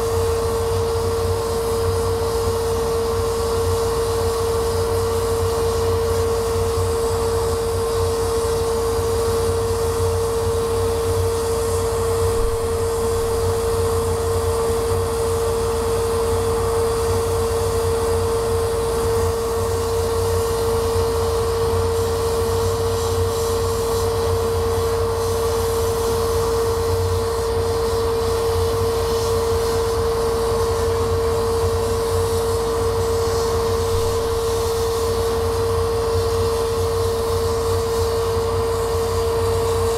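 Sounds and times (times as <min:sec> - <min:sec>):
laser cutter drone: 0:00.0 - 0:39.9.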